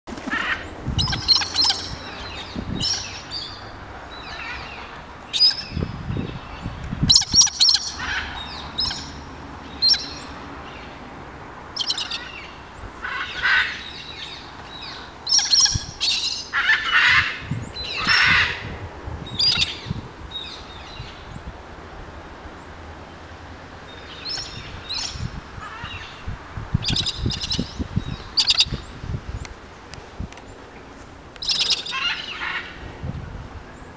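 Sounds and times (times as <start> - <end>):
wind rumbling on microphone: 0.1 - 33.9
cockatoos calling: 0.2 - 3.6, 7.1 - 11.0, 11.8 - 18.7, 31.4 - 32.8.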